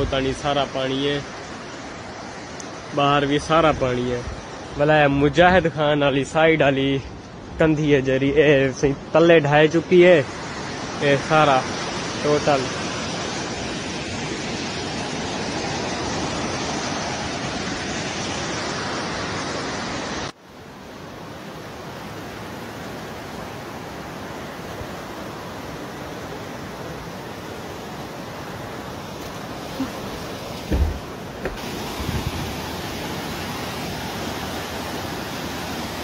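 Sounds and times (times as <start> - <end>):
floodwater rushing: 21.6 - 36.0.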